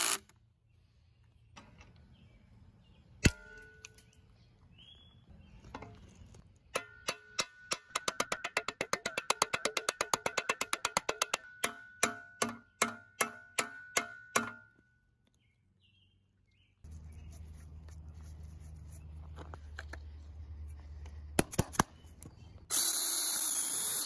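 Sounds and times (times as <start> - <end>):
hammer ringing on metal: 6.8 - 14.7.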